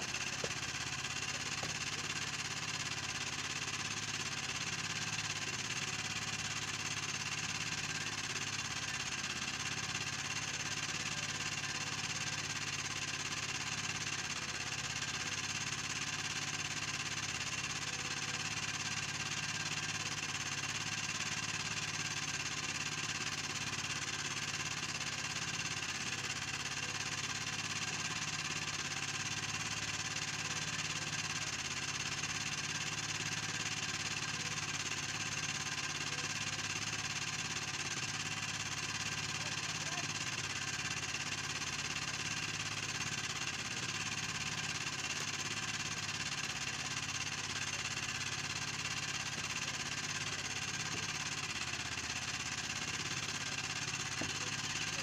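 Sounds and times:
small boat engine droning: 0:00.0 - 0:12.7, 0:42.5 - 0:55.0.

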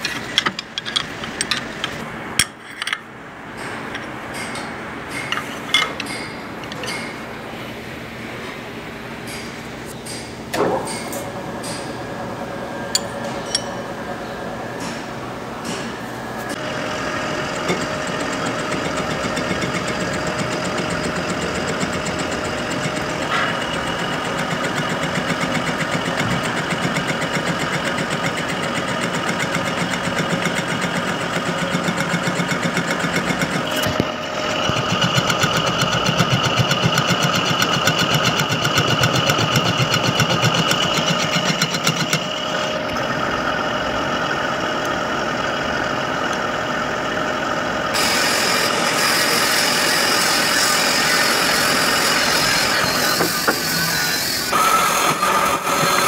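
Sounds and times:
metal lathe rattling: 0:24.2 - 0:42.8.

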